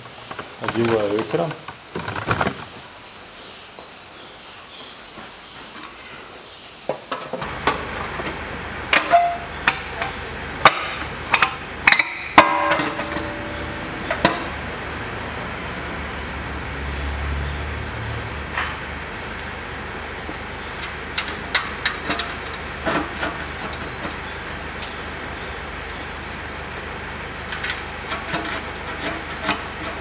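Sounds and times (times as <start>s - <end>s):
sheet metal clanking: 7.4s - 14.9s
low steady hum: 7.4s - 30.0s.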